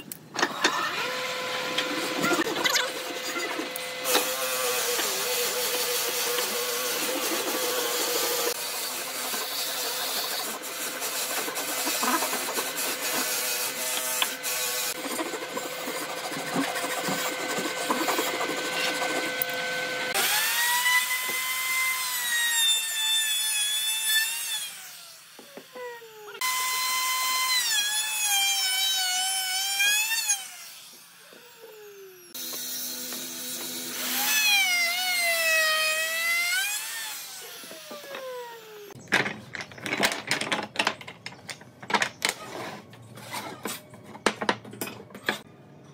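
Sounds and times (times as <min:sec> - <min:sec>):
electric wood router whining: 0:00.4 - 0:39.0
handsaw cutting wood: 0:00.6 - 0:39.0.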